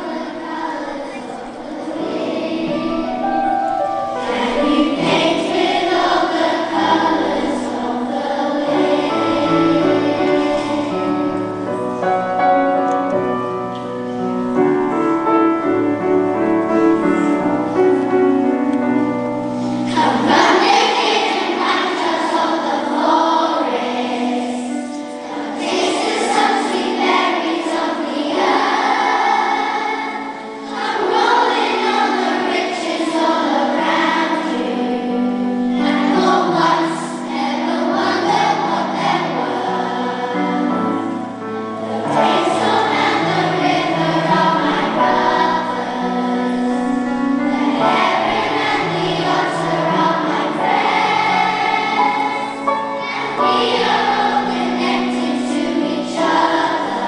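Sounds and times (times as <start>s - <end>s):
children's choir singing: 0.0s - 57.0s.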